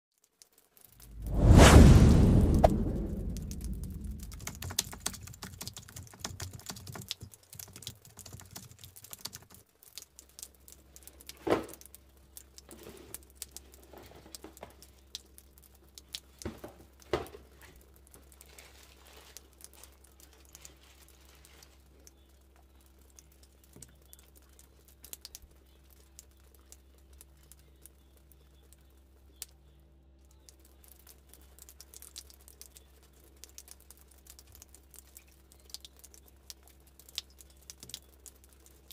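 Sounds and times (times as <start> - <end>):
steady low hum: 1.1 - 5.4
cardboard box and tissue rustling: 17.4 - 21.8.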